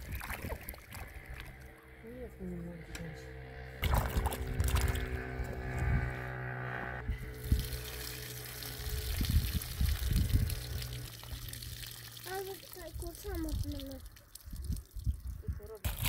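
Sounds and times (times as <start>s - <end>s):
water pouring and trickling: 0.0s - 1.6s, 3.8s - 5.1s, 7.3s - 16.0s.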